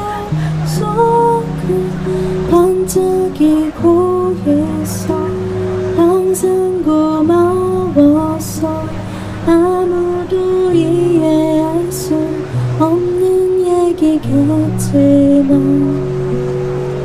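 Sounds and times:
woman singing: 0.0 - 16.4
acoustic guitar: 0.0 - 17.0.

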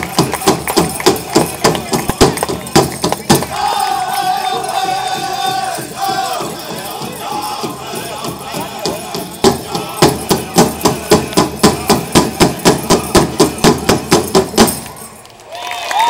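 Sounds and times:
drum group singing: 0.0 - 14.8
big drum struck hard: 5.0 - 14.8.

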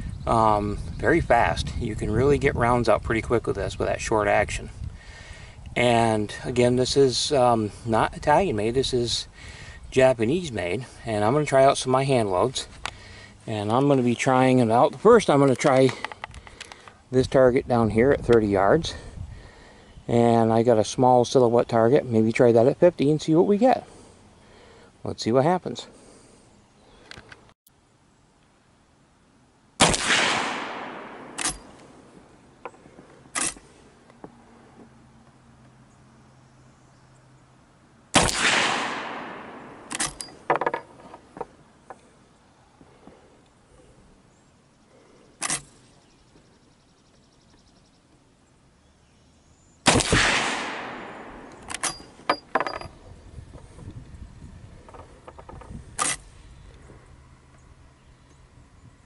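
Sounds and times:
rifle shot with echo: 29.8 - 31.8, 38.1 - 40.2, 49.8 - 52.0
rifle lever clicks: 31.3 - 31.7, 39.9 - 40.8.

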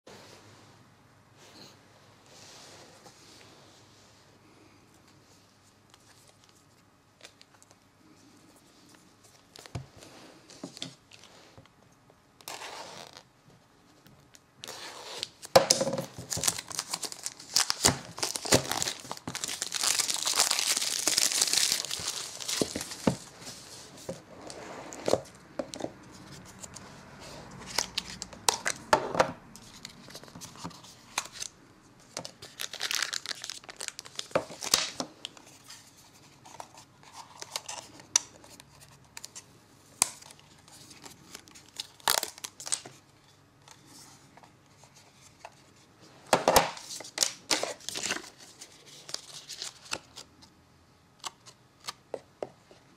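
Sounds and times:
plastic shrink-wrap crinkling and tearing: 16.1 - 23.3, 32.2 - 35.0, 40.0 - 42.9, 46.7 - 50.3.

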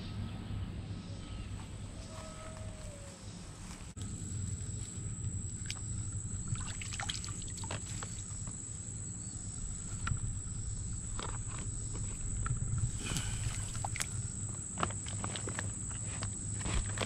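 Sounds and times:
low outdoor rumble: 0.0 - 17.0
small water splashes: 5.6 - 8.4.

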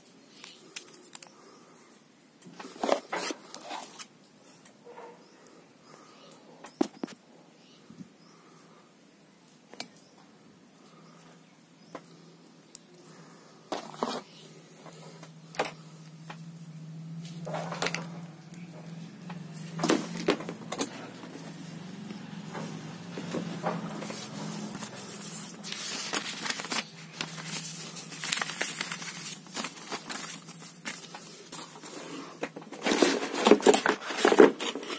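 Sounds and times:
packaging paper rustling: 2.5 - 4.0, 13.7 - 15.9, 17.2 - 34.9
low steady hum: 7.4 - 34.3.

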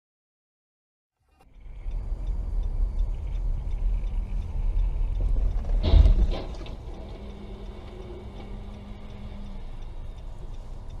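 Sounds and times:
car road and engine rumble: 1.2 - 11.0.

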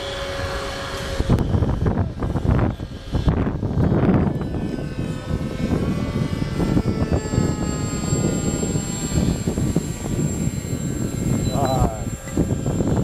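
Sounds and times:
drone motors whining: 0.0 - 13.0
wind rumble on microphone: 0.0 - 13.0.

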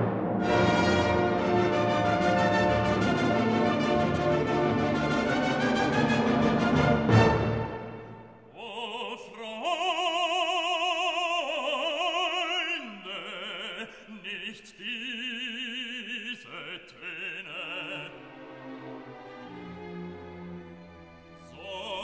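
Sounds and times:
operatic vocal melody with vibrato: 8.4 - 19.4, 21.4 - 22.0.

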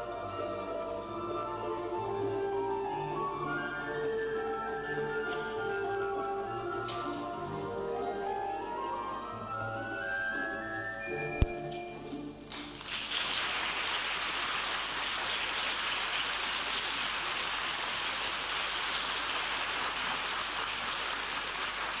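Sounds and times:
music: 0.0 - 12.9
audience applauding: 12.5 - 22.0.

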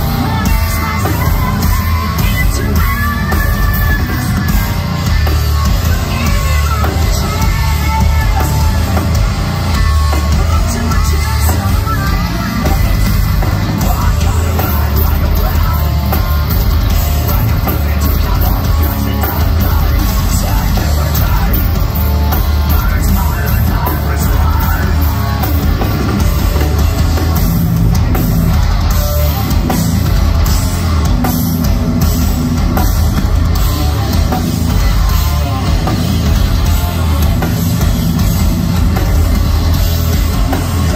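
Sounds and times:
woman singing into a microphone: 0.0 - 13.2
bass guitar: 0.0 - 40.9
distorted guitars: 0.0 - 40.9
drums: 0.0 - 40.9.

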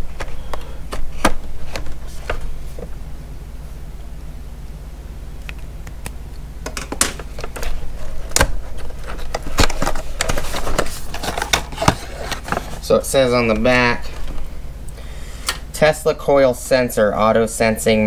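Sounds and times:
steady low hum: 0.0 - 18.0
cardboard packaging being opened: 7.0 - 13.0.

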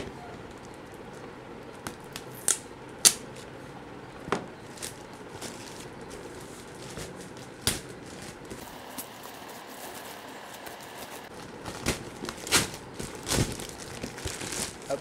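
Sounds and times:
plastic mailer tearing: 4.8 - 15.0.

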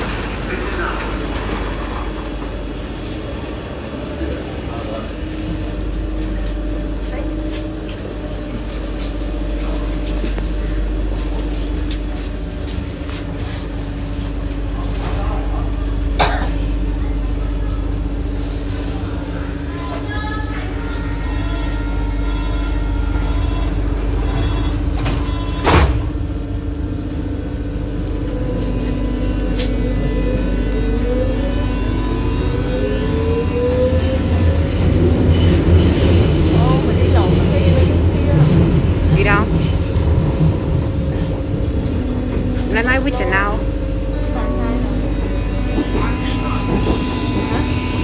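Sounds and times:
train hum and rumble: 0.0 - 48.0
train doors shutting with a bang: 22.7 - 26.6, 44.4 - 48.0
traction motor whine rising in pitch: 28.1 - 35.6.

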